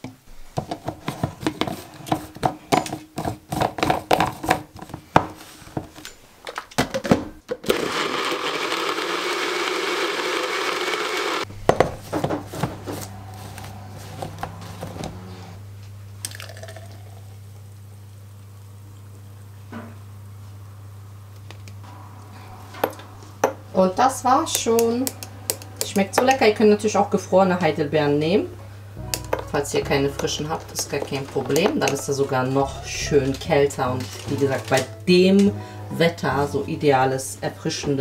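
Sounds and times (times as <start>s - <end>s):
blender motor blending: 7.6s - 11.5s
steady low hum: 11.5s - 37.6s.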